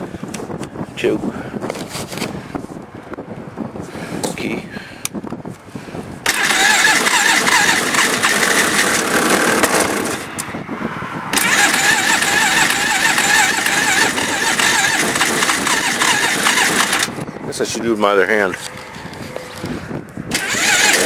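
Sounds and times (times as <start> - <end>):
electric starter cranking engine: 6.2 - 10.3, 11.3 - 17.2, 20.3 - 21.0.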